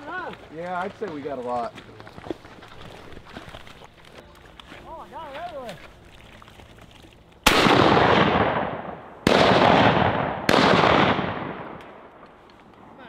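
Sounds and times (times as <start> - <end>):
shotgun blasts: 7.4 - 12.1.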